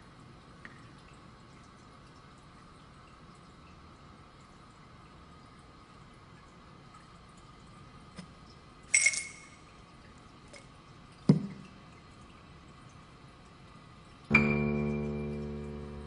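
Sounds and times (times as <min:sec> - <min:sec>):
bright clink: 0:08.9 - 0:09.6
ringing chord: 0:14.3 - 0:16.0.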